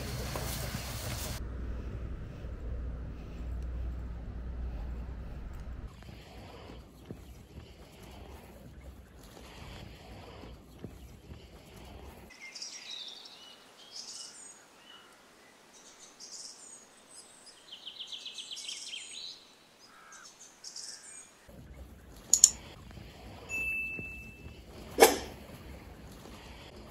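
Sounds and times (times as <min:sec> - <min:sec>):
birds chirping and calling: 0:15.8 - 0:23.1.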